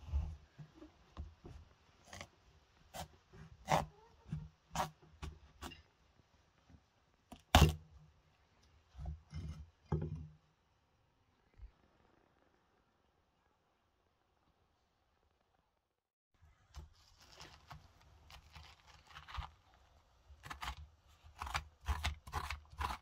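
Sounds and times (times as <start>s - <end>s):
knife cracking pumpkin rind: 7.4s - 7.8s, 16.8s - 19.8s, 20.4s - 23.0s.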